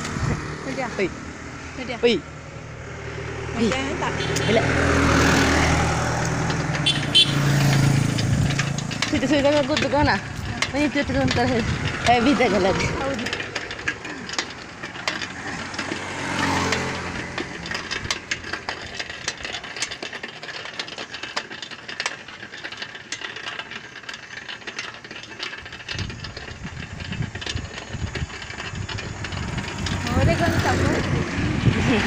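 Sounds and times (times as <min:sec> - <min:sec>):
wind buffeting microphone: 0:00.0 - 0:01.2, 0:07.4 - 0:14.0, 0:25.8 - 0:32.0
vehicle passing: 0:00.0 - 0:20.2, 0:28.0 - 0:32.0
rattling clicks: 0:00.0 - 0:32.0
road and wind noise: 0:00.0 - 0:32.0.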